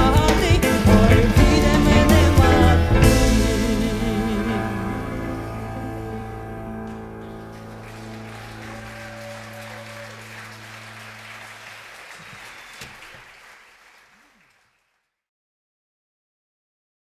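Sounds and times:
band's held chord: 0.0s - 10.2s
audience applauding: 6.9s - 15.0s.

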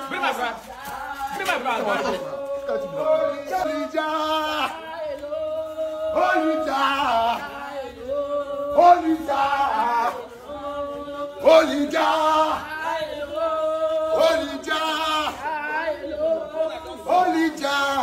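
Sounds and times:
man singing a chant: 0.0s - 18.0s.

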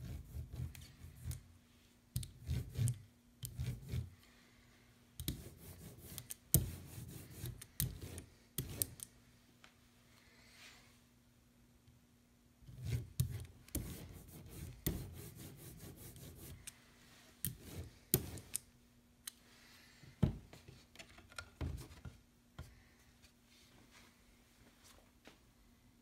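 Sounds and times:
ink roller rubbing on wood: 12.8s - 16.6s.

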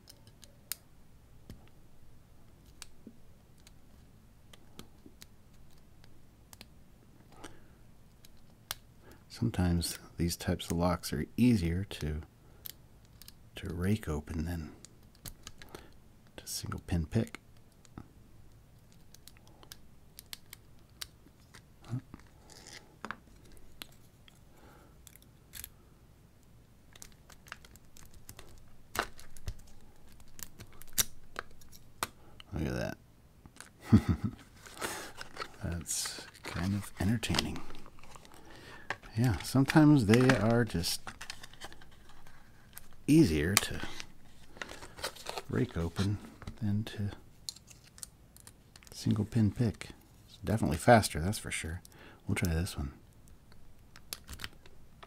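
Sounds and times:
lock pick clicking and scratching: 0.0s - 0.8s.

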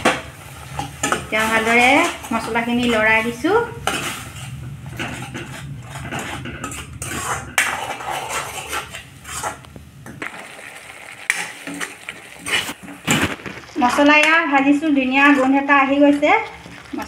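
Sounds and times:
metal spoon scraping a pan: 0.0s - 9.7s, 11.3s - 17.0s
paste sizzling in oil: 5.3s - 17.0s.

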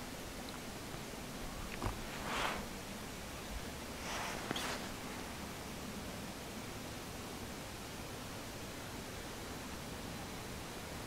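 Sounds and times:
steady hiss: 0.0s - 11.0s
soft rustle: 0.9s - 5.4s.

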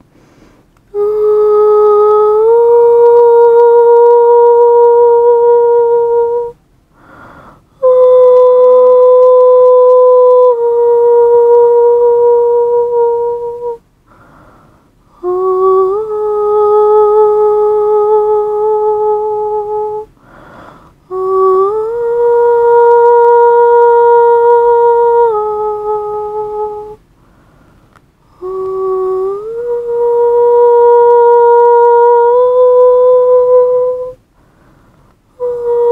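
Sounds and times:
person humming: 0.9s - 13.8s, 15.1s - 27.0s, 28.2s - 34.2s, 35.3s - 35.9s.

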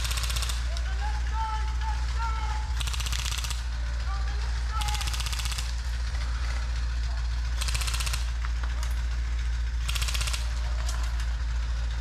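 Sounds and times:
airsoft guns firing bursts: 0.0s - 6.1s, 7.4s - 8.6s, 9.7s - 11.1s
steady low rumble: 0.0s - 12.0s.

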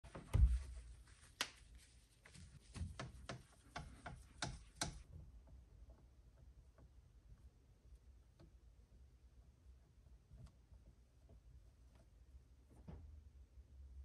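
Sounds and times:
whiteboard being wiped: 0.1s - 4.8s.

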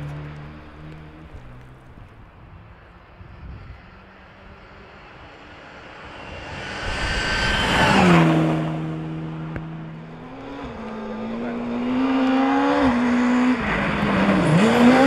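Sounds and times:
car engine approaching: 0.0s - 15.0s
rally car engine passing: 0.0s - 15.0s.

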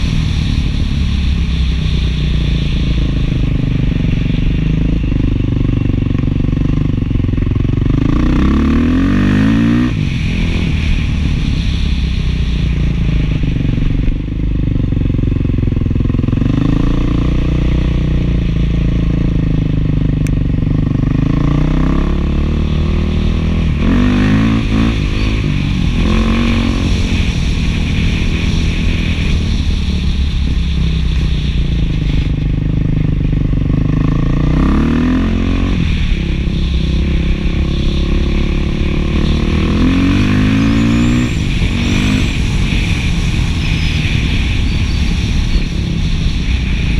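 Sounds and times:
motorcycle engine revving: 0.0s - 46.9s.

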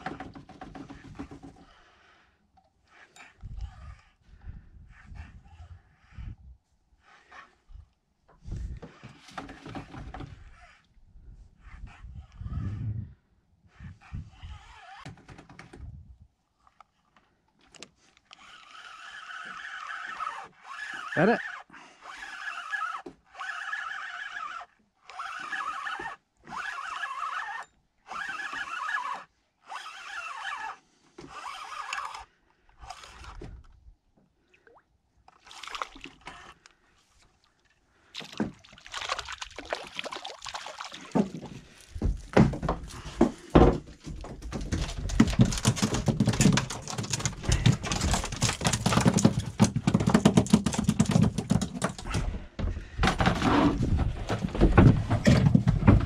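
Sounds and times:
fishing reel winding: 18.3s - 26.0s, 26.6s - 30.8s, 31.4s - 33.3s
fish flapping on deck: 38.2s - 52.2s.

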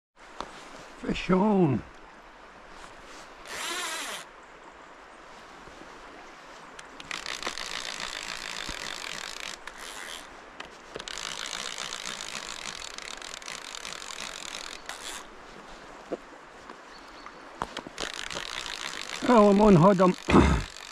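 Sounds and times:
fishing reel ratchet buzzing: 3.5s - 4.3s, 6.8s - 10.3s, 11.0s - 15.3s, 17.9s - 20.9s.

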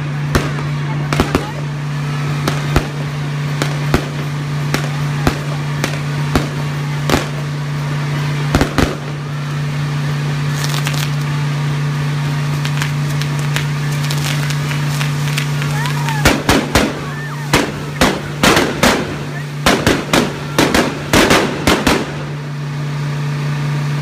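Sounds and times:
firecracker bangs: 0.0s - 22.7s
crackling spark fireworks: 0.0s - 24.0s
low steady hum: 0.0s - 24.0s.

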